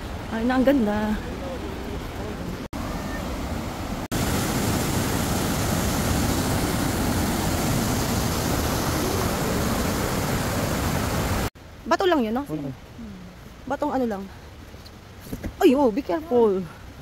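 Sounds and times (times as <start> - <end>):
waterfall rushing: 1.2 - 11.5.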